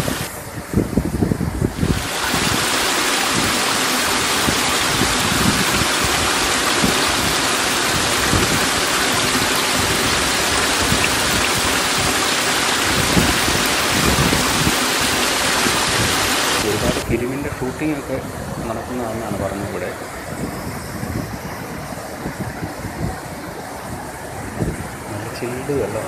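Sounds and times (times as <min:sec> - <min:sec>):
waterfall and stream rushing: 0:00.0 - 0:00.6, 0:01.2 - 0:26.0.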